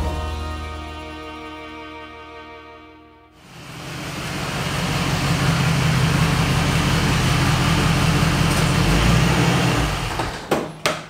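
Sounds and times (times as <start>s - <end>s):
car engine running: 3.4s - 10.2s.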